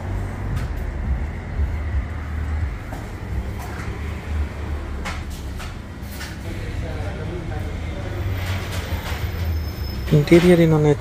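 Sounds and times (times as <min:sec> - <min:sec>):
low rumble: 0:00.0 - 0:06.0.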